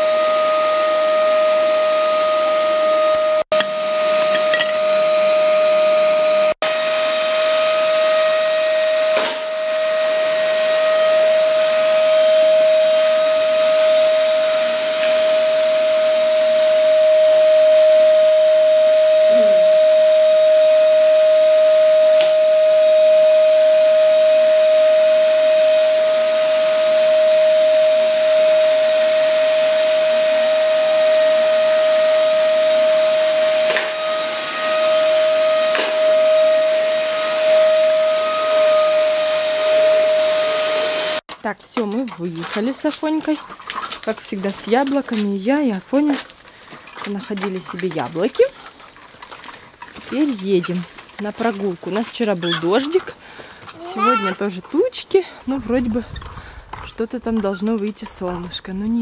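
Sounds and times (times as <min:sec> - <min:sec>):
vacuum cleaner running: 0:00.0 - 0:41.3, 0:50.1 - 0:56.0.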